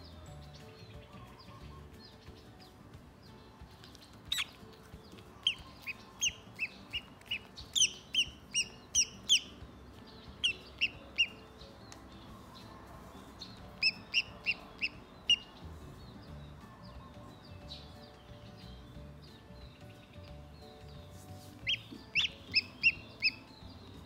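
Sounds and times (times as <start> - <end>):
duckling peeping: 3.7 - 12.1, 13.4 - 24.0.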